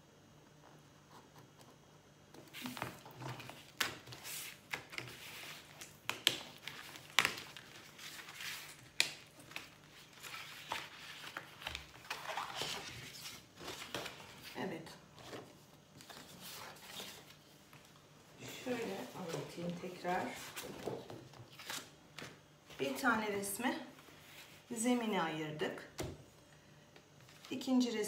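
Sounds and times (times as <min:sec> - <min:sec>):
paper rustling and crackling: 0:02.4 - 0:14.6.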